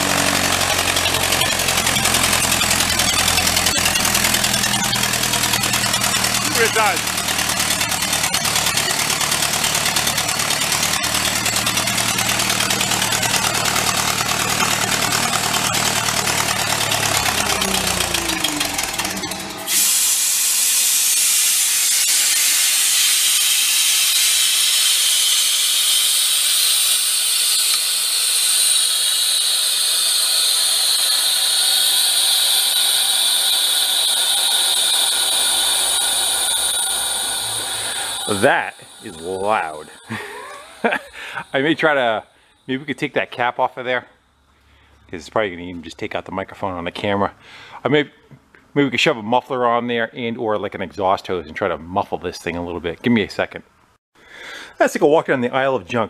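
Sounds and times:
compressor engine droning: 0.0 - 43.0
loud air hiss with whistle: 19.7 - 42.7.

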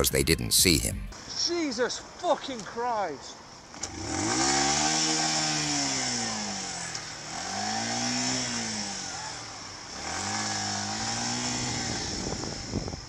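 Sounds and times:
motorcycle engine revving: 3.8 - 12.8.

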